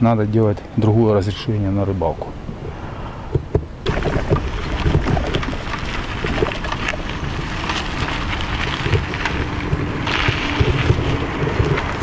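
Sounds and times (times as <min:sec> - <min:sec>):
wind buffeting microphone: 0:00.8 - 0:12.0
bicycle tyres on dirt: 0:02.6 - 0:12.0
bicycle rattles and clicks: 0:03.8 - 0:12.0.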